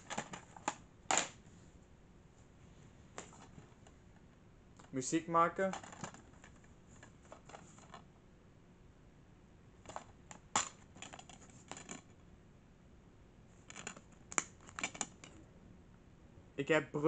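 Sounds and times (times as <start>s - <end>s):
plastic case clicks and rattles: 0.0s - 1.4s, 5.6s - 8.0s, 9.9s - 12.1s, 13.7s - 15.3s.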